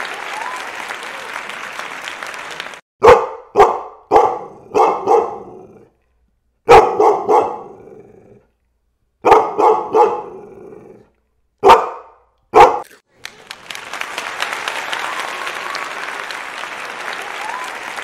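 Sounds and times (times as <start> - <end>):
dog barking: 3.0 - 5.9, 6.6 - 7.9, 9.2 - 10.7, 11.6 - 12.9.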